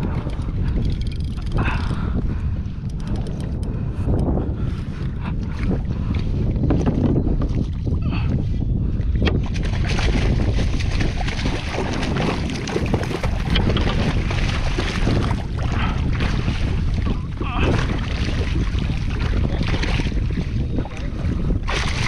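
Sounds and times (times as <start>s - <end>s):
wind buffeting microphone: 0.0s - 22.0s
fish thrashing and splashing water: 9.3s - 22.0s.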